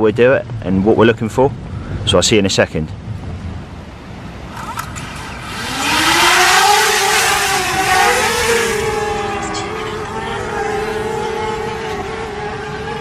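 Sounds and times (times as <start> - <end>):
drone propellers buzzing whine: 4.3 - 13.0.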